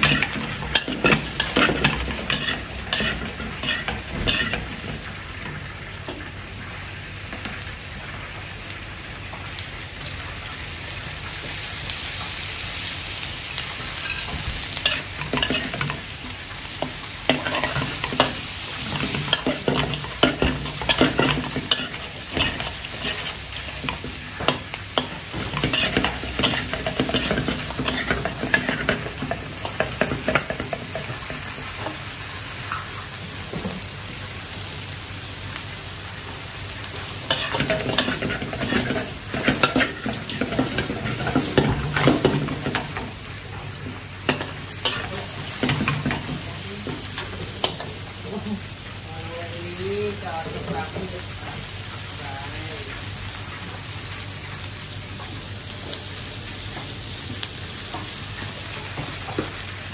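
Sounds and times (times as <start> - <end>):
metal spatula scraping a pan: 0.0 - 4.7, 17.3 - 30.7
prawns sizzling in a wok: 0.0 - 59.9.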